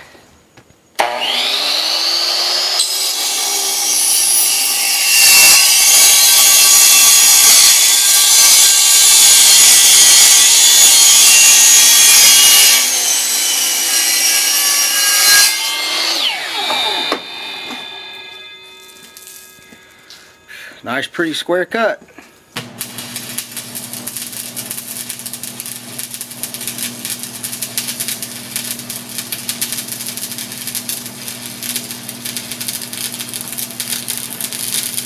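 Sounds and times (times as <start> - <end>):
sawmill motor whine: 1.0 - 5.0, 15.1 - 20.1
saw cutting through wood: 1.0 - 18.8.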